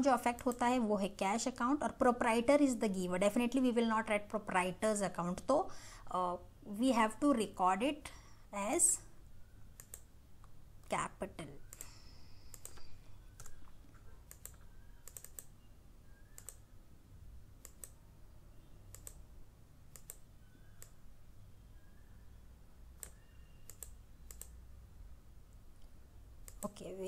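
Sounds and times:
computer keyboard key clicks: 0:12.5 - 0:12.8, 0:14.3 - 0:15.5, 0:16.3 - 0:16.6, 0:17.6 - 0:18.0, 0:18.9 - 0:19.2, 0:19.9 - 0:21.0, 0:23.0 - 0:24.6.

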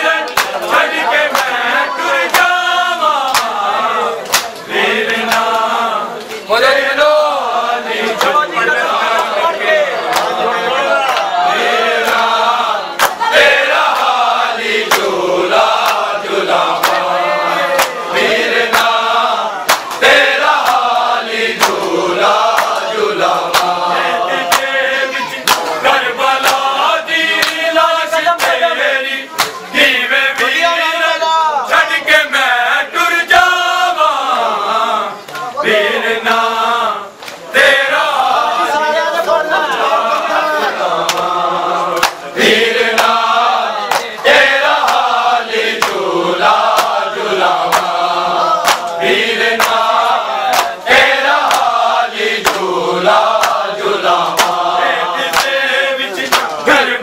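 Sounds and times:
rhythmic hand slaps on chests: 0:00.0 - 0:30.9, 0:36.2 - 0:36.6, 0:37.2 - 0:38.4, 0:39.7 - 0:57.0
men chanting a lament: 0:00.0 - 0:57.0.

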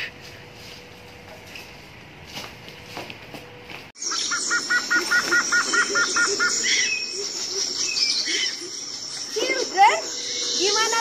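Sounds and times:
birds chirping: 0:04.0 - 0:11.0
high insect drone: 0:04.0 - 0:11.0.

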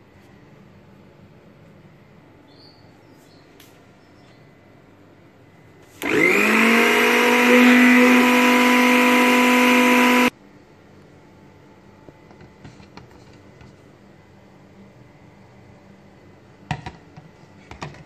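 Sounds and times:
blender motor whining: 0:06.0 - 0:10.3.

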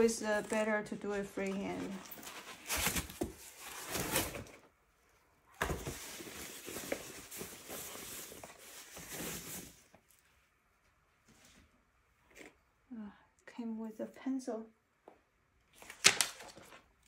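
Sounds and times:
cardboard and plastic rustling: 0:00.0 - 0:04.8, 0:05.6 - 0:10.4, 0:15.7 - 0:17.0.

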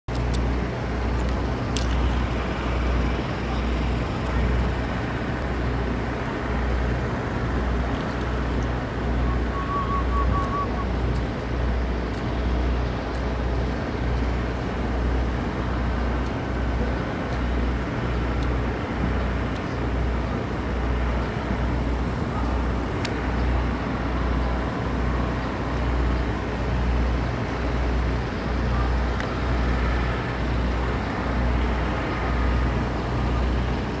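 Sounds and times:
steady low rumble: 0:00.1 - 0:34.0.

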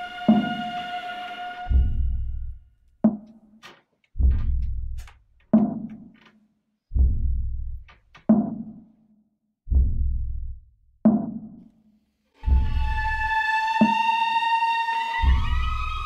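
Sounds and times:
deep booming drum hits: 0:01.7 - 0:02.6, 0:04.2 - 0:05.0.

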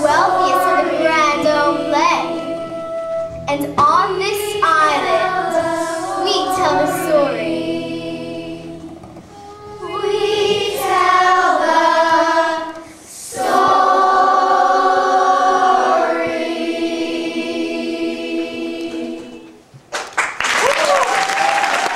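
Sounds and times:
young people singing in chorus: 0:00.0 - 0:03.5, 0:04.1 - 0:19.7.

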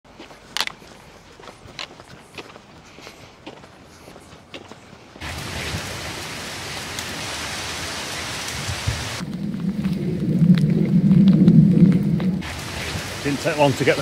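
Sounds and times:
heavy rain falling: 0:05.2 - 0:14.0
deep rumble: 0:08.4 - 0:13.4.

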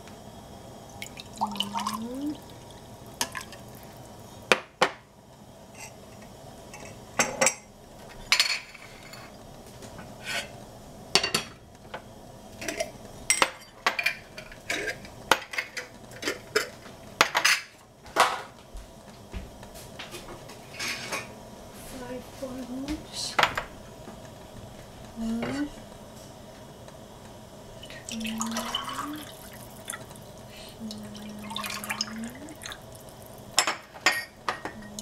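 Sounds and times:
glass jars clinking: 0:33.6 - 0:35.0.

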